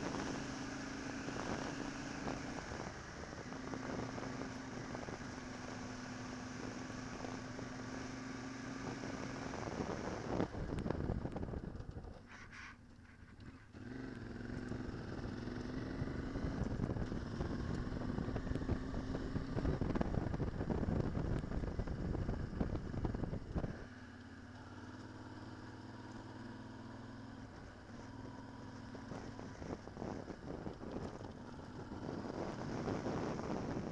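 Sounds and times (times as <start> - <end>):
motorcycle engine on dirt track: 0.0 - 33.9
rough ride noise: 27.2 - 33.9.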